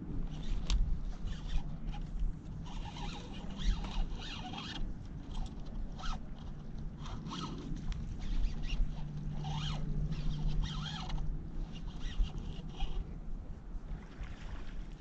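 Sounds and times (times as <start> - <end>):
fishing reel buzzing: 0.2 - 13.1.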